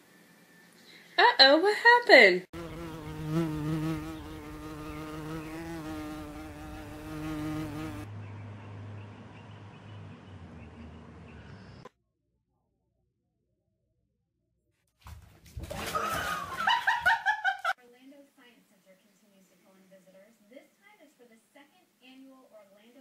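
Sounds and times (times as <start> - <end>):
flying insect buzzing: 2.6 - 8.1.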